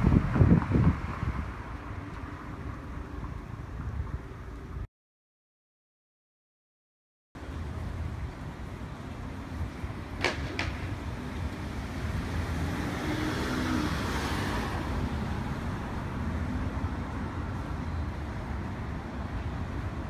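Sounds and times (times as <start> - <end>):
traffic rumble: 0.0 - 4.9, 7.4 - 20.0
vehicle passing: 10.7 - 20.0.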